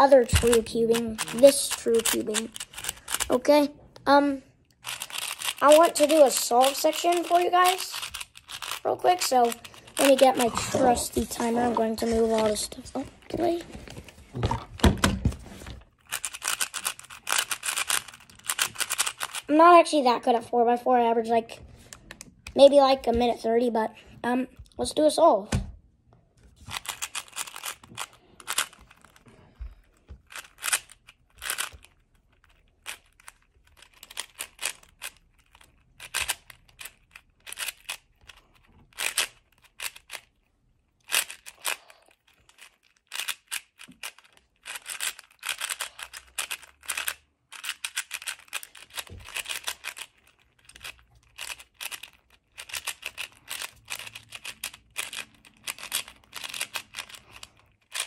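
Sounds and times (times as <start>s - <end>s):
plastic cube layers clicking: 0.0s - 3.6s, 4.8s - 13.5s, 16.0s - 19.5s, 26.6s - 40.3s, 41.0s - 58.0s.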